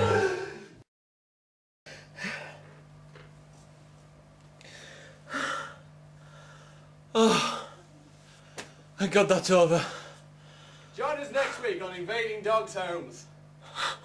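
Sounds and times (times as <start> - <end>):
steady low hum: 1.9 - 14.0
man breathing out heavily: 4.6 - 8.6, 9.8 - 11.0.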